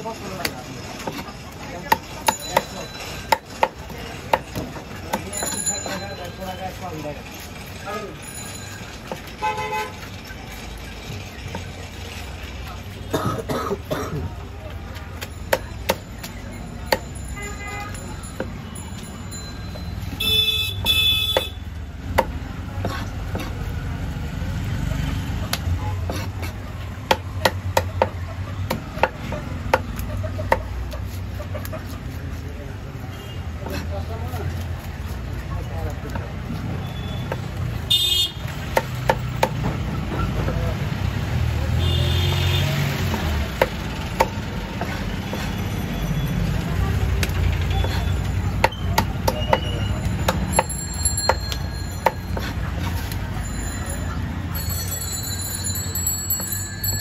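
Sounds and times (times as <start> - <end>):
knife chopping on wooden block: 21.3 - 23.6, 25.5 - 30.7.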